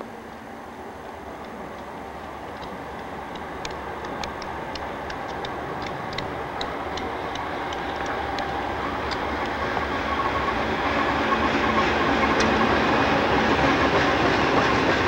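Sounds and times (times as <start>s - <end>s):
diesel locomotive and rail rumble: 0.0s - 15.0s
sharp ticks: 1.0s - 10.6s.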